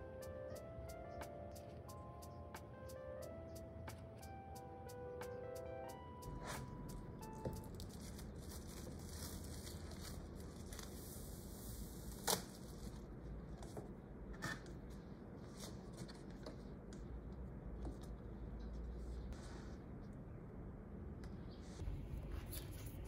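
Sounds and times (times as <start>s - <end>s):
packaging rustling and tearing: 7.6s - 13.0s.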